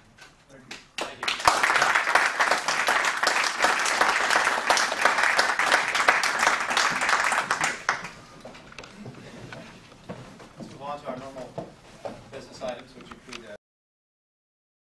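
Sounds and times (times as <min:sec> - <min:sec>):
audience applauding: 0:01.0 - 0:08.3.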